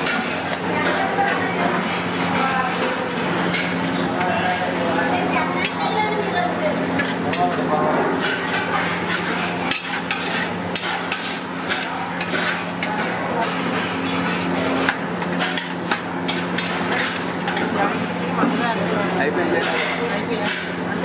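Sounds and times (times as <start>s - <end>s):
onions frying in oil: 0.0s - 21.0s
metal spatula scraping iron pan: 8.2s - 12.6s.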